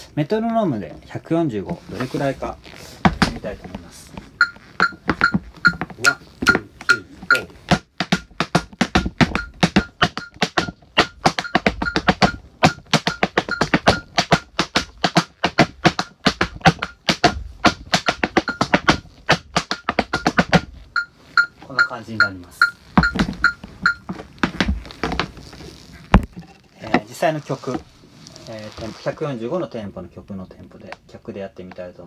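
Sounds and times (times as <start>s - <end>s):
tap shoes striking the floor: 3.0s - 20.7s, 22.9s - 25.4s
metronome ticking: 4.4s - 24.1s.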